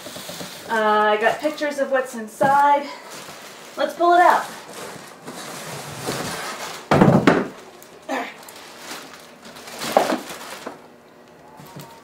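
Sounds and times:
plastic bag crinkling: 2.5 - 12.0.

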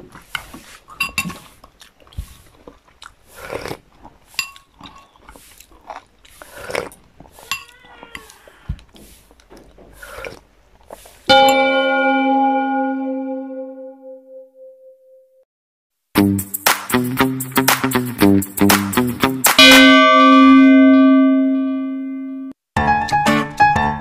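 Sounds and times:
cutlery scraping a plate: 7.5 - 7.8.

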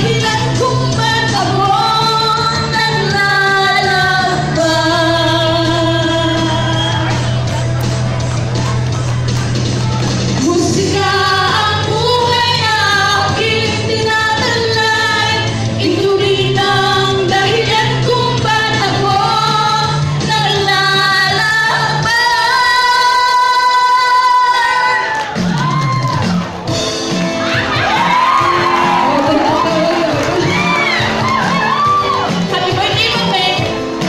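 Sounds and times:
women singing: 0.0 - 7.3, 10.4 - 25.2, 28.6 - 31.0
backing music: 0.0 - 34.0.

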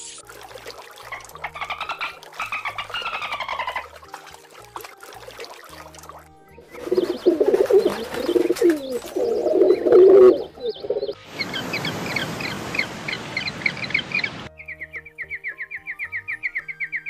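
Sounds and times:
fast regular chirps: 6.6 - 11.2
pigeons cooing: 6.6 - 11.2
high-pitched chirping: 6.8 - 11.2.

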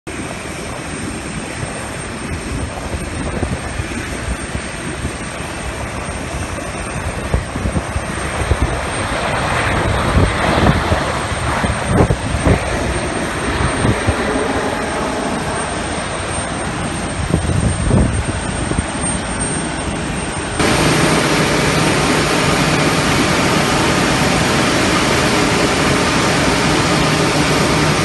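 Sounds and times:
jet engines roaring: 0.1 - 28.0.

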